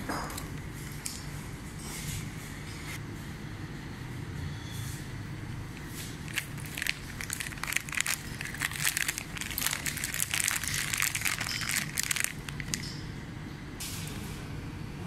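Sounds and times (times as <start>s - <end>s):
plastic bag crinkling: 6.0s - 13.0s.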